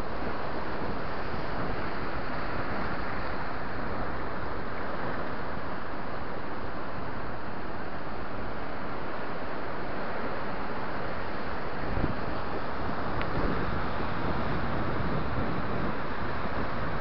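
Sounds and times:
wind on microphone: 0.0s - 5.4s, 11.5s - 17.0s.

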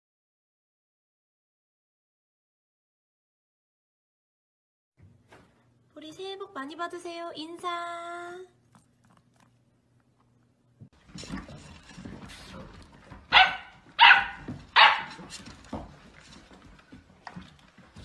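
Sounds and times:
puppy barking: 13.3s - 15.2s.

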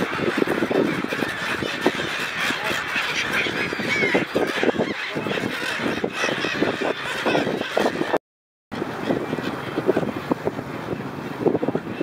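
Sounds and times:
gulls squawking: 0.0s - 8.2s.

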